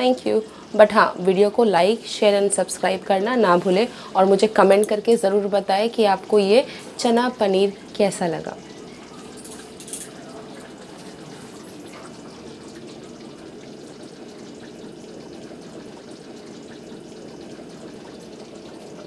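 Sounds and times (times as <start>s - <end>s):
gravy bubbling and popping: 5.8s - 19.0s.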